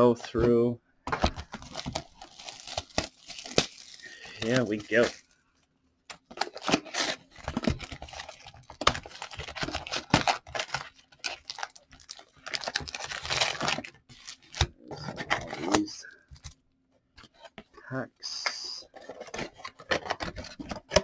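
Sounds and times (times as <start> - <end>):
cardboard rustling: 0.3 - 5.3, 6.2 - 16.6, 18.8 - 21.0
shrink wrap crackling and tearing: 1.4 - 5.3, 6.2 - 14.9.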